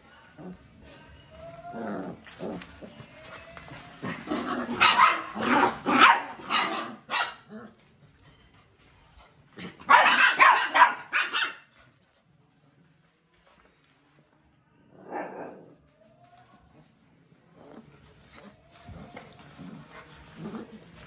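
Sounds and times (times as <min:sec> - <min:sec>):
puppies barking: 0:04.1 - 0:07.5, 0:09.7 - 0:11.7.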